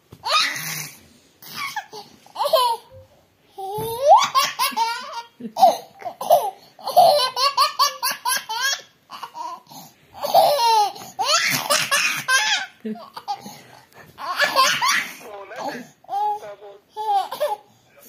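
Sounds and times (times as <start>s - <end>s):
baby laughing: 0.2s - 3.0s, 3.6s - 13.6s, 14.2s - 15.3s, 17.0s - 17.7s.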